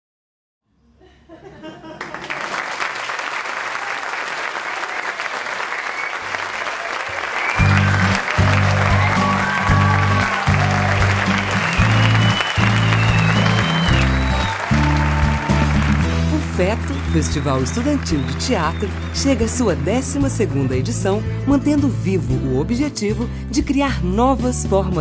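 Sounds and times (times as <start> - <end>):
audience applauding: 2.0 - 20.4.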